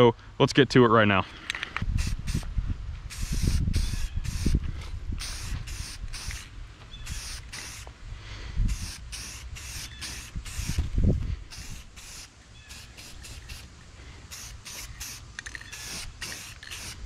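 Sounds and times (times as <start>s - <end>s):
aerosol spray hissing bursts: 1.9s - 2.4s, 3.1s - 4.6s, 5.2s - 7.9s, 8.7s - 10.9s, 11.5s - 17.0s.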